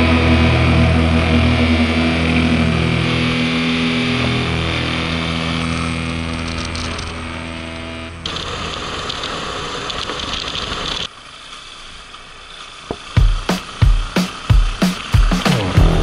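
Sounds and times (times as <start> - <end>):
motorcycle engine running: 13.2 - 16.0.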